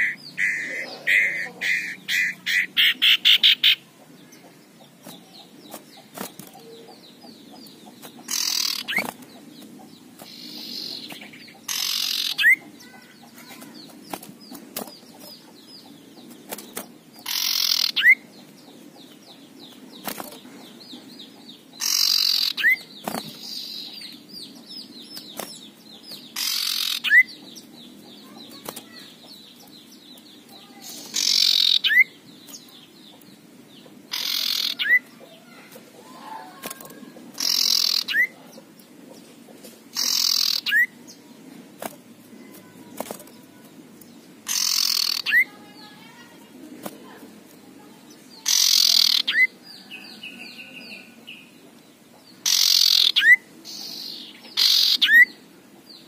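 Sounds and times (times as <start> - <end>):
bird harsh rasping call: 0.0 - 3.8, 8.3 - 9.1, 10.3 - 13.8, 17.2 - 18.2, 21.8 - 22.8, 26.4 - 27.3, 30.6 - 32.2, 34.1 - 36.6, 37.4 - 38.4, 40.0 - 40.9, 44.4 - 46.3, 48.4 - 49.5, 52.4 - 55.3.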